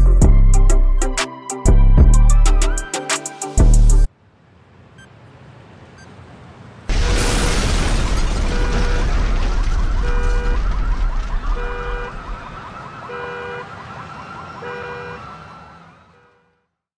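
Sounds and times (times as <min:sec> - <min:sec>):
loud boom with deep rumble: 0:06.9 - 0:12.6
two-tone siren: 0:08.5 - 0:16.8.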